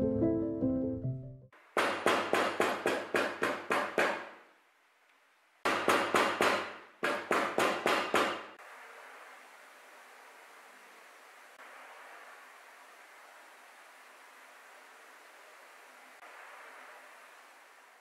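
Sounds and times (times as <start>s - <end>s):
faint room hiss: 4.3s - 5.7s, 8.6s - 18.0s.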